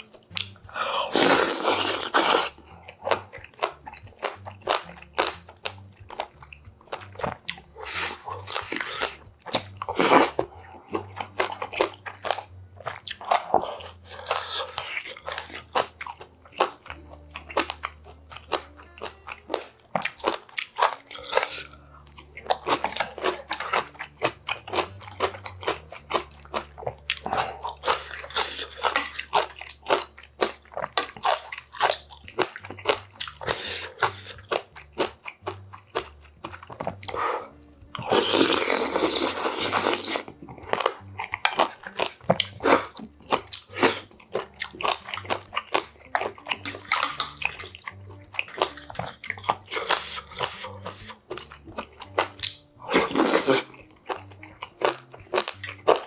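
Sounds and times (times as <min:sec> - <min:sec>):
wet chewing and mouth smacking: 0:00.0 - 0:56.0
loud slurp of broth: 0:01.0 - 0:02.6, 0:09.9 - 0:10.4.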